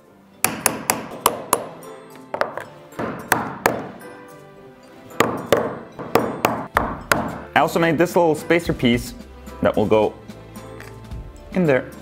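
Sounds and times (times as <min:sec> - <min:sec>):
background music: 0:00.0 - 0:12.0
hammer tapping with metallic ring: 0:05.1 - 0:07.4.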